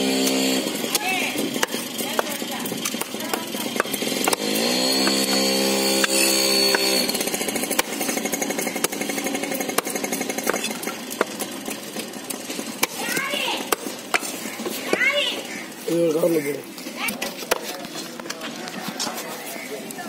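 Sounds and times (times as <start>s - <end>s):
motor running: 0.0s - 16.5s
knife chopping fish on wood: 0.9s - 5.4s.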